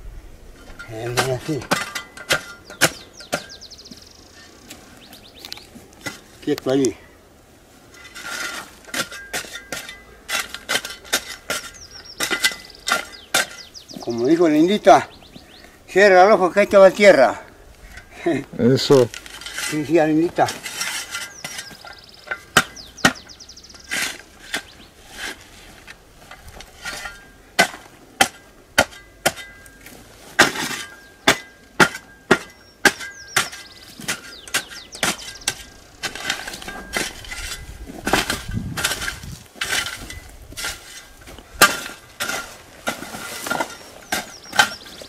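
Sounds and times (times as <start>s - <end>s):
soil scraping: 0.5s - 45.0s
shovel striking dry earth: 0.6s - 3.7s, 8.0s - 14.8s, 18.9s - 45.0s.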